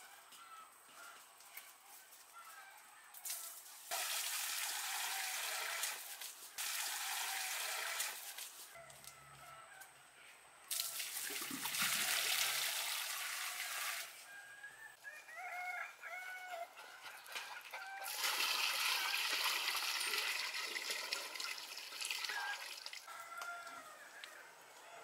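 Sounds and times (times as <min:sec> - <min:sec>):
water splashing into pool: 0:03.9 - 0:08.4, 0:10.7 - 0:14.1, 0:17.4 - 0:23.1
rooster crowing: 0:08.8 - 0:10.0, 0:14.2 - 0:18.2, 0:22.3 - 0:25.0.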